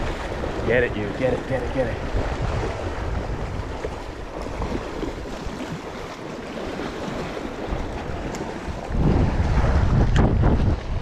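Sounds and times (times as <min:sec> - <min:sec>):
wind noise on microphone: 0:00.0 - 0:05.9, 0:06.7 - 0:11.0
waves washing on shore: 0:00.0 - 0:11.0.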